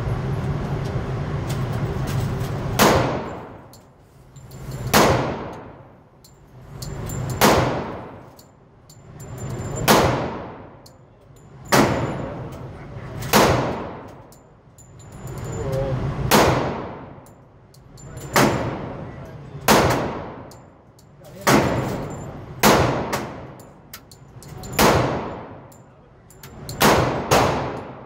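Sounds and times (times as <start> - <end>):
pistol shots indoors: 2.7 - 3.8, 4.8 - 5.9, 7.3 - 8.4, 9.8 - 10.9, 11.7 - 12.3, 13.2 - 14.4, 16.2 - 17.3, 18.2 - 19.0, 19.6 - 20.8, 21.4 - 23.6, 24.6 - 25.8, 26.6 - 28.0.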